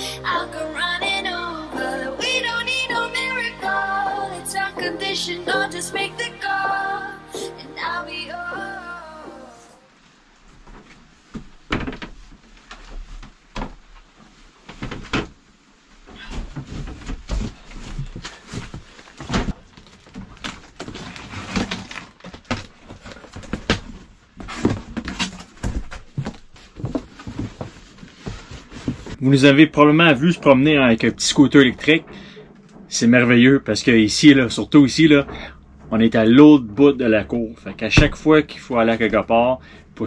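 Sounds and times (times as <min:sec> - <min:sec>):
pop song: 0:00.0 - 0:09.9
cardboard rustling and scraping: 0:10.1 - 0:29.4.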